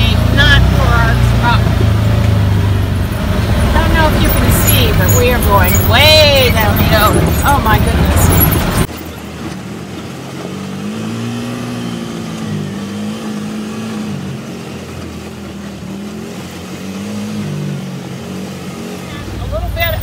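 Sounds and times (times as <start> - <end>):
atv engine revving: 0.0 - 20.0.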